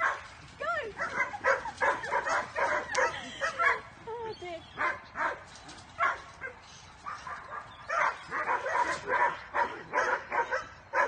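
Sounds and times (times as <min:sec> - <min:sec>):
dog yelping and barking: 0:01.0 - 0:03.8, 0:06.0 - 0:11.0.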